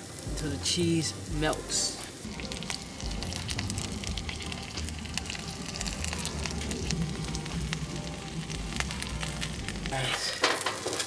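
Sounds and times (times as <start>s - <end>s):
butter sizzling in a frying pan: 0.0s - 11.0s.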